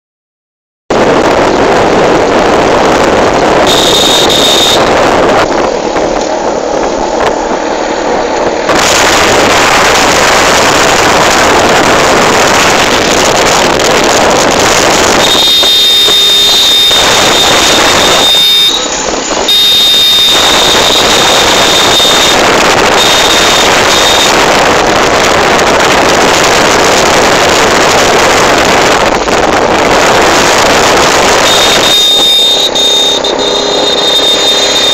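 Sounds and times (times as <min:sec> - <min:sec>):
vehicle road noise: 0:00.9 - 0:34.9
wind rush: 0:00.9 - 0:34.9
thin high whistle: 0:03.7 - 0:04.9, 0:15.2 - 0:18.9, 0:19.5 - 0:22.4, 0:31.4 - 0:34.9.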